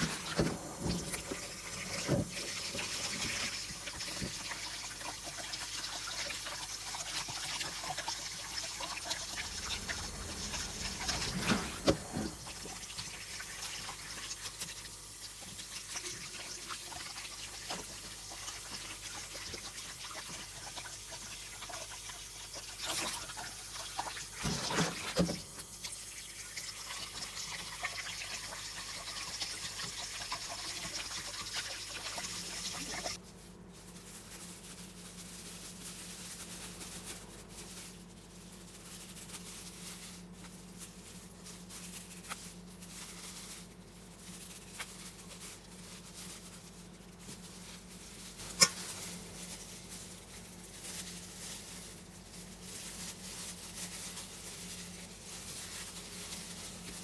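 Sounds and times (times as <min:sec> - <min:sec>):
low steady hum: 0:07.8 - 0:19.4.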